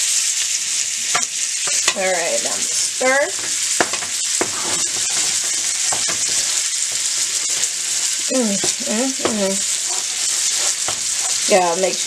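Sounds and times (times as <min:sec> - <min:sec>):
meat sizzling in a pan: 0:00.0 - 0:12.0
wooden spoon scraping a pot: 0:01.7 - 0:12.0
person speaking: 0:08.3 - 0:10.2, 0:11.3 - 0:12.0.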